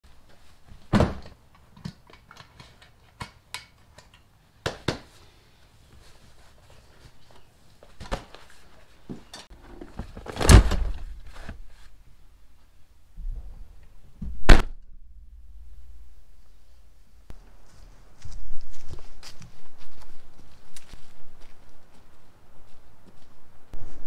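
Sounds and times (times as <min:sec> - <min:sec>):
backpack thumping down: 0:09.9 - 0:11.6.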